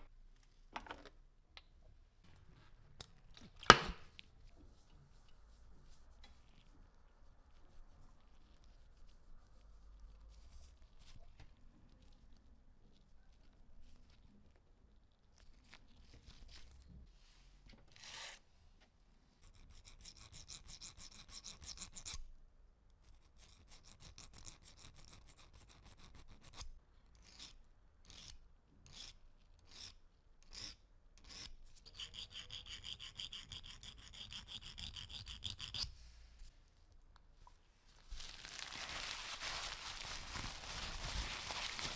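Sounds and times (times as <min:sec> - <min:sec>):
file rasping on porcelain: 0:19.4 - 0:22.2, 0:23.1 - 0:35.9.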